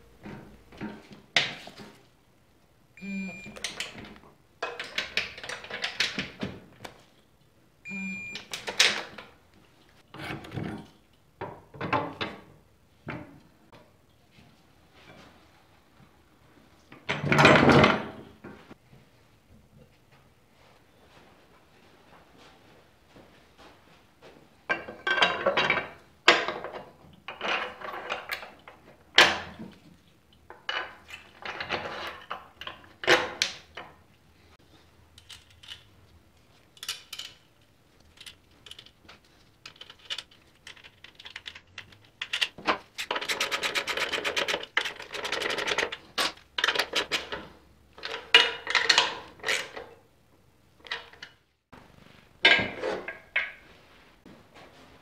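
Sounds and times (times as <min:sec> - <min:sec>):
metal tools clinking: 0:36.6 - 0:39.0.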